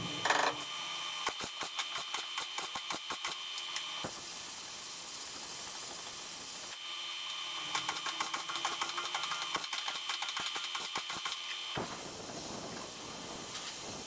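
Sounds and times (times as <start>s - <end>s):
welder crackling and popping: 1.2s - 14.0s
steady hiss: 4.0s - 6.8s, 11.8s - 14.0s.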